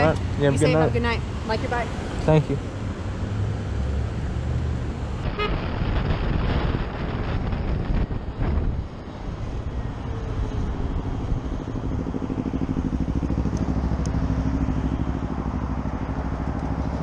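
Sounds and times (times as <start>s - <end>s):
wind and road noise: 0.0s - 17.0s
motorcycle engine running: 11.6s - 17.0s.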